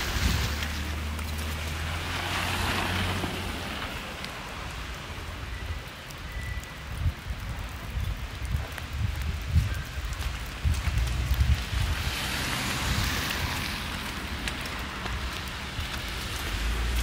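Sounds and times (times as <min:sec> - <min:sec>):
tyre hiss on snow: 0:00.0 - 0:07.6.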